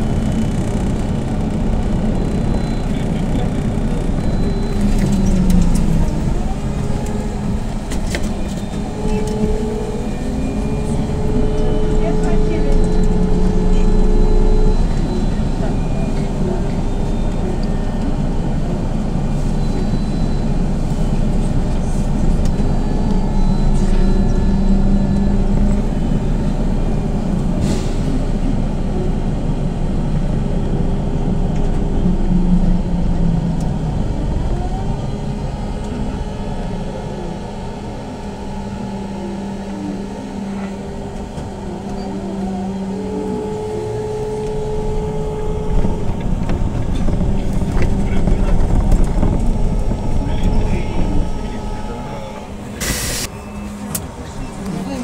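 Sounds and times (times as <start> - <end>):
trolleybus hum: 0.0 - 55.0
electric motor whine: 3.8 - 15.7, 34.5 - 54.9.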